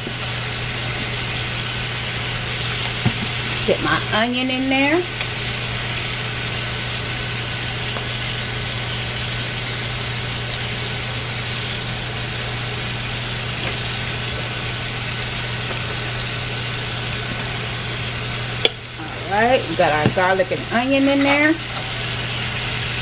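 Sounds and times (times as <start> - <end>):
steaks sizzling in skillet: 0.0 - 23.0.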